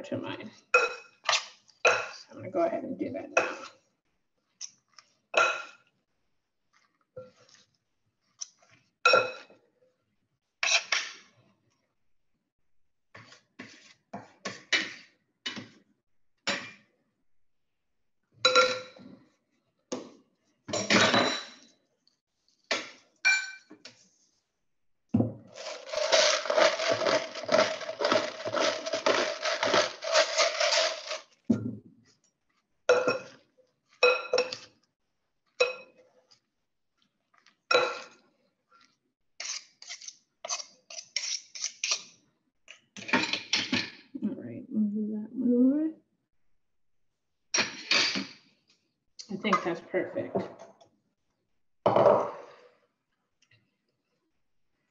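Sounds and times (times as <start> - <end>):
utensils clinking on metal tray: 25.6 - 31.2
serving spoons clattering: 25.6 - 31.3.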